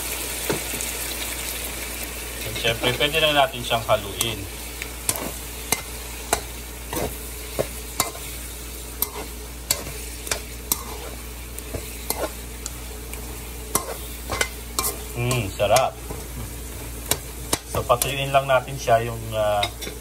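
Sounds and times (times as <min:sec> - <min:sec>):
meat sizzling in a pan: 0:00.0 - 0:20.0
spatula scraping a pan: 0:05.0 - 0:12.8, 0:13.7 - 0:16.0.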